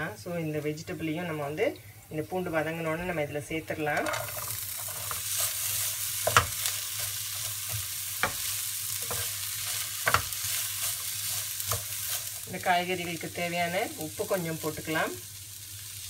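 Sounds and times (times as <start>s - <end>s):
vegetables sizzling in oil: 0.0s - 16.0s
spatula knocking on pan: 6.2s - 6.6s, 7.7s - 9.3s, 10.0s - 10.4s.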